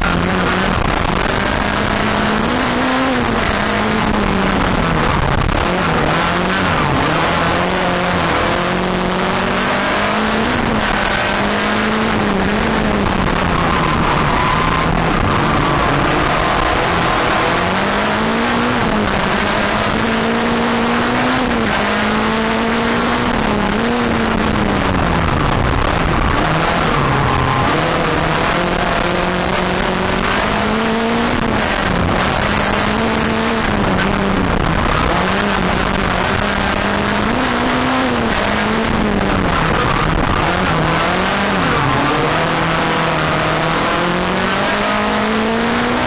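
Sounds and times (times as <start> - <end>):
racing car engine revving: 0.0 - 46.0
road noise: 0.0 - 46.0.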